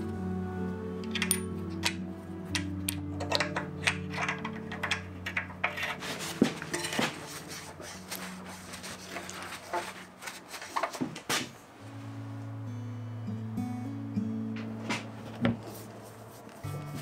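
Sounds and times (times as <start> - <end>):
metal tools clinking and knocking: 1.0 - 7.4.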